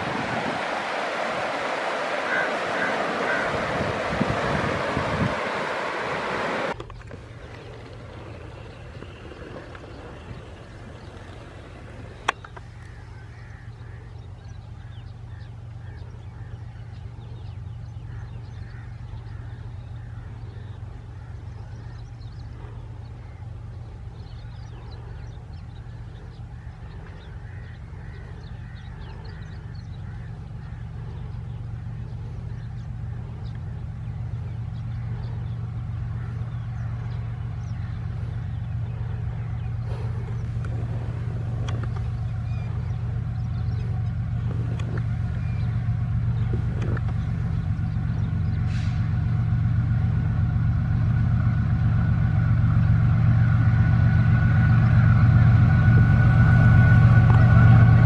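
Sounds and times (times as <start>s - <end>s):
birds calling: 0.0s - 58.0s
locomotive engine hum: 0.0s - 58.0s.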